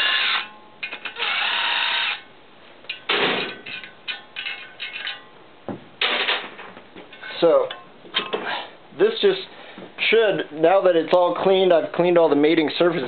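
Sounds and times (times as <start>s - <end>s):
cordless drill spinning bolts: 0.0s - 2.2s.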